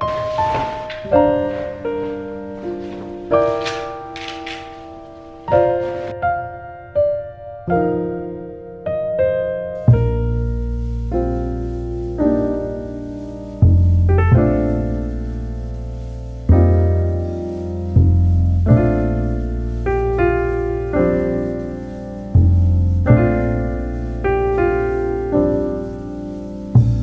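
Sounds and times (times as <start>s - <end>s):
slow solo piano: 0.0s - 27.0s.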